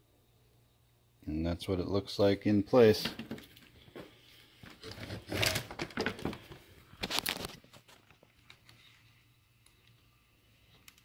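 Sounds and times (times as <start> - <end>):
plastic scraping rubs: 4.7 - 8.0.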